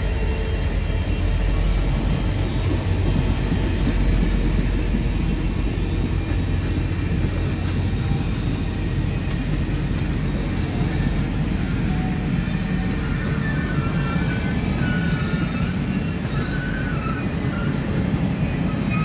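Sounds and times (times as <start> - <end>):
train wheels rumbling on track: 0.0 - 19.0.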